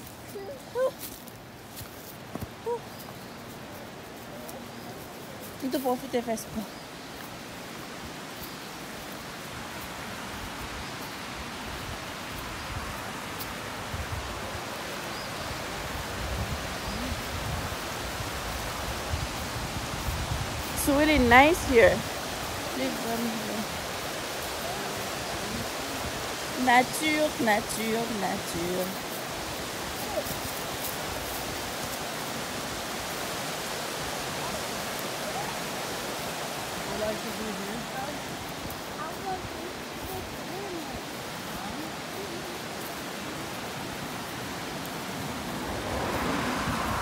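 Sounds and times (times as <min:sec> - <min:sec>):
stream water rushing: 0:00.0 - 0:47.0.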